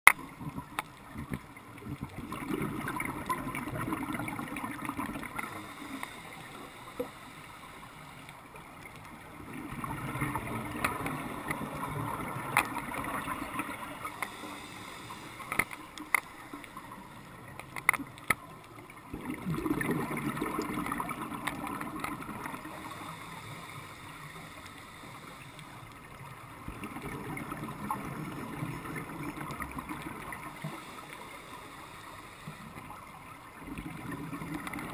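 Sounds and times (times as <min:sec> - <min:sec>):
underwater bubbles bursting: 0:00.1 - 0:05.6, 0:09.3 - 0:14.4, 0:18.9 - 0:22.9, 0:26.2 - 0:30.9, 0:33.5 - 0:34.9
diver breathing through regulator: 0:05.4 - 0:08.3, 0:14.0 - 0:16.8, 0:22.7 - 0:25.8.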